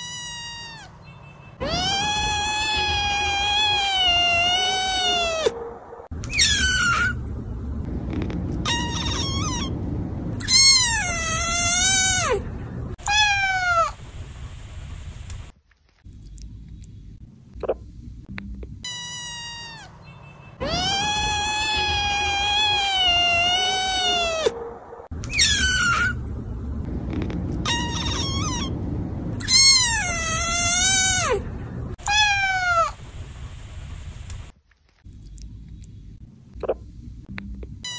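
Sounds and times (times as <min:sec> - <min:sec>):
kittens meowing: 0:00.0 - 0:01.0, 0:01.6 - 0:05.6, 0:08.6 - 0:09.8, 0:13.0 - 0:14.0, 0:20.6 - 0:24.6, 0:27.6 - 0:28.7, 0:29.4 - 0:31.4, 0:32.0 - 0:33.0.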